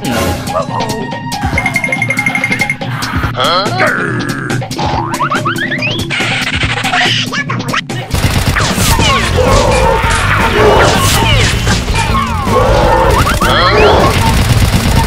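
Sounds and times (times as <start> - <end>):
rapid gunfire: 8.0 - 15.0.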